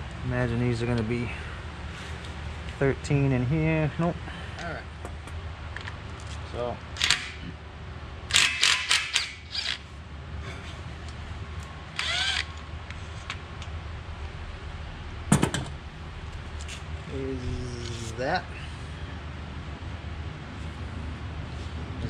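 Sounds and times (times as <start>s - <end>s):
sharp metal clank: 15.2s - 16.0s.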